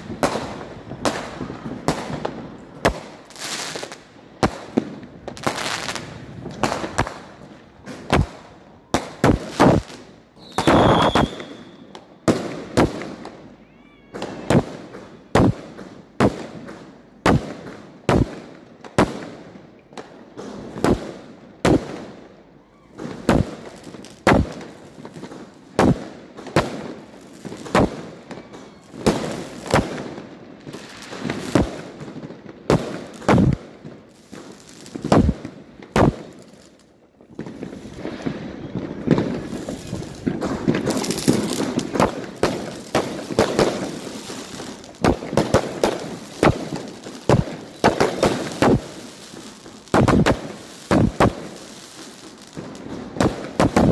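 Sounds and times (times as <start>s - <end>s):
fireworks bangs with echo: 0.0s - 53.9s
firework whistle: 10.4s - 12.1s.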